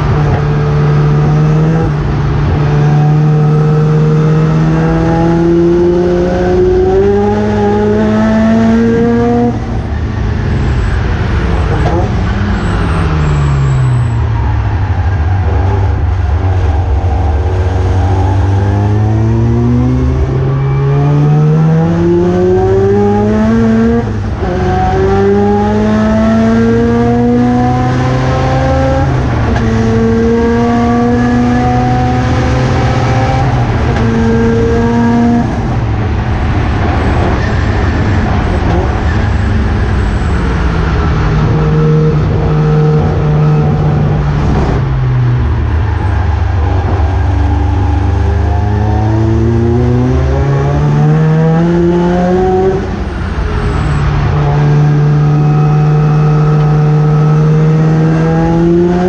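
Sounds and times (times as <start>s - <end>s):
race car engine accelerating: 0.0s - 59.0s.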